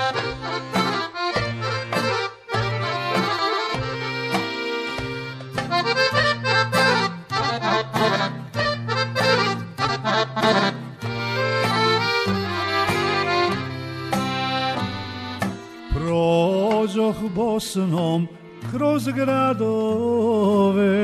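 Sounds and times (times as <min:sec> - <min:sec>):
piano accordion melody: 0:00.0 - 0:19.8.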